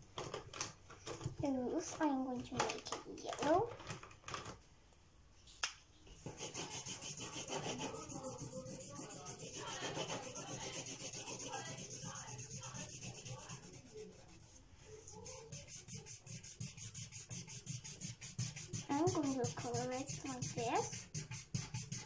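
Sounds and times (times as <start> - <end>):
marker scribbling on paper: 6.2 - 22.0.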